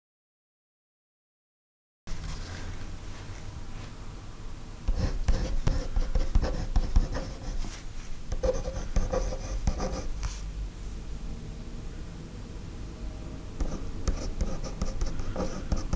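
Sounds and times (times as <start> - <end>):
low steady hum: 2.1 - 15.9
pencil scratching on paper: 4.9 - 7.8, 8.4 - 10.2, 13.6 - 15.9.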